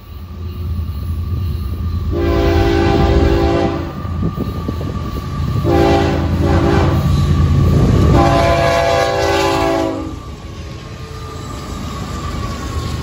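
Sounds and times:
diesel locomotive rumble: 0.0 - 13.0
train air horn blasts: 2.1 - 4.0, 5.6 - 7.2, 8.0 - 10.2.

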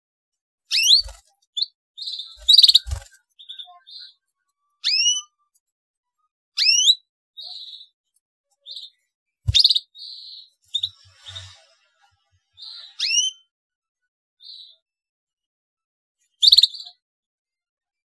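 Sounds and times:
canary chirping: 0.6 - 5.6, 6.6 - 13.5, 14.4 - 14.8, 16.3 - 17.0.

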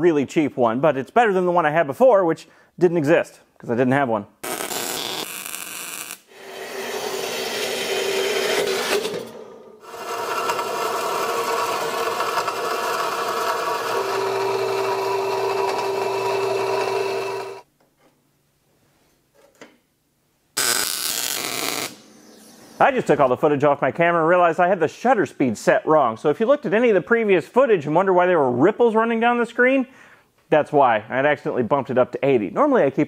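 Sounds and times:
power tool grinding: 4.4 - 17.6.

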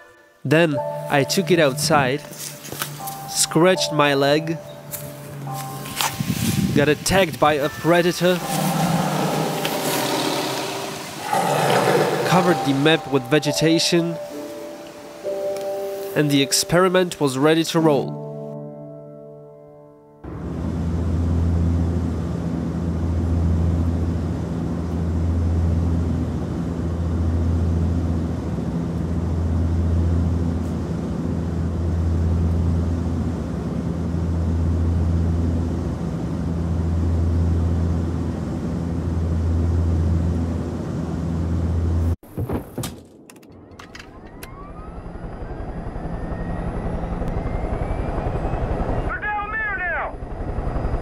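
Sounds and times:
aircraft engine drone: 4.5 - 15.9, 20.2 - 42.2, 43.4 - 51.0
helicopter rotor beat: 6.6 - 13.2, 20.3 - 42.1, 43.5 - 51.0
helicopter engine starting up: 8.4 - 12.8, 43.2 - 49.1, 50.1 - 51.0.

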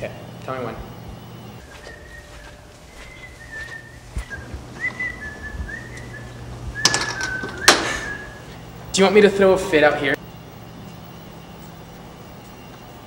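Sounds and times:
low steady hum: 0.0 - 13.0
person whistling a tune: 1.6 - 8.5.

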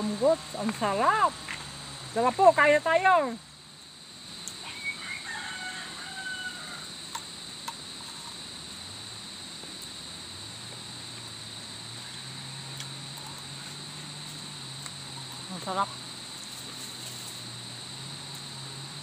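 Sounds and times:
insects droning: 0.0 - 19.0
rooster crowing: 4.6 - 7.0.

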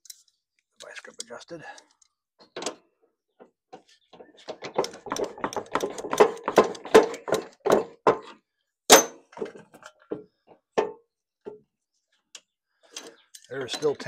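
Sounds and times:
sharp metal clack: 8.9 - 9.2.

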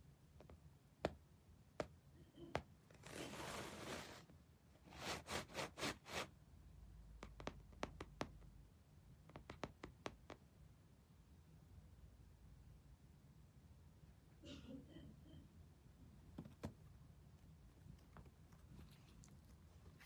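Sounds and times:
faint scratching: 2.4 - 4.3, 16.3 - 20.0
soft rustling: 2.9 - 4.3, 16.3 - 20.0.

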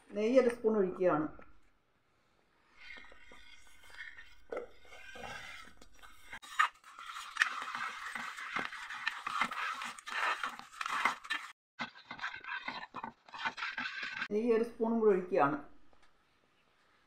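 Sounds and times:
metal spoon scraping a metal pot: 2.7 - 14.3.

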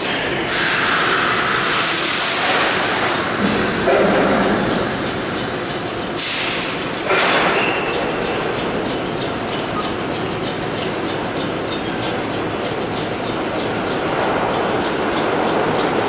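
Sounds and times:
air hiss: 0.0 - 3.2, 6.2 - 6.7
train wheels rumbling: 0.0 - 16.0
high-pitched wheel squeal: 1.0 - 1.9, 7.1 - 8.6
wheels clicking over rail joints: 2.4 - 16.0.

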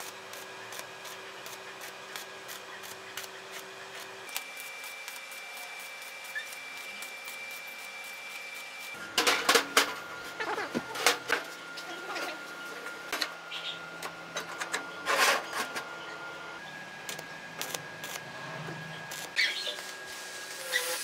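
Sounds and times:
arc welding hiss and ticks: 0.0 - 9.0, 17.0 - 18.2, 19.1 - 21.0.

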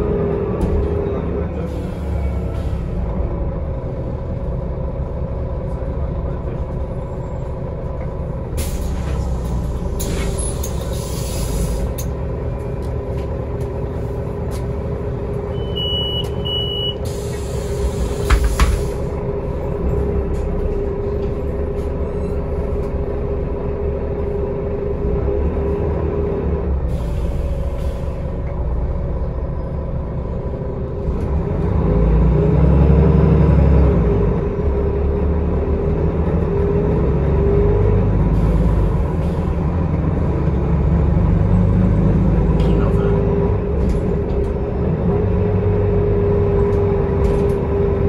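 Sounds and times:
bus diesel engine running: 0.0 - 48.0
short beeps: 15.5 - 17.0.

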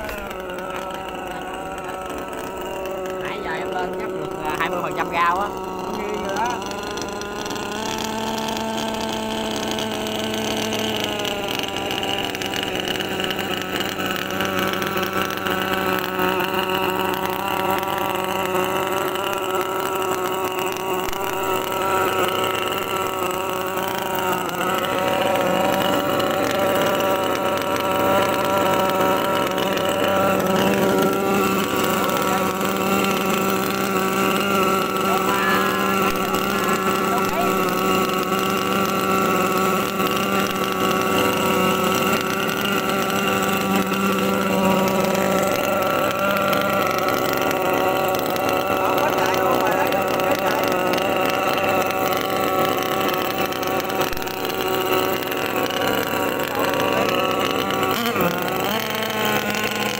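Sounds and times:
small model boat engine: 0.0 - 59.9.

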